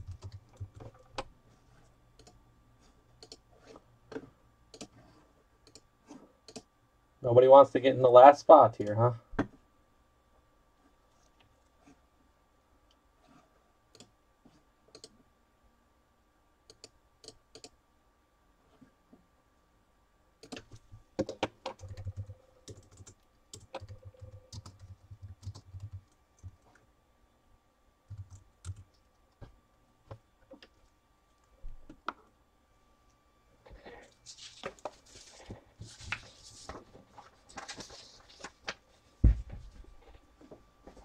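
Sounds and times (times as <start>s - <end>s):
typing on computer keyboard: 0.0s - 1.3s, 20.4s - 26.6s, 28.1s - 28.9s.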